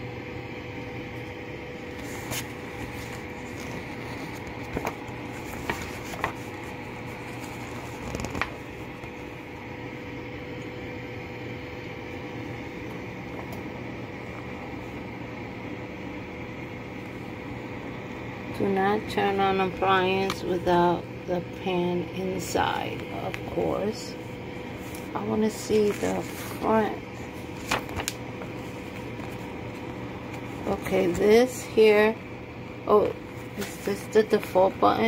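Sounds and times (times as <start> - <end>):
air fryer fan humming: 0.0 - 35.0
paper rustling and tapping: 2.0 - 9.1, 27.4 - 31.3.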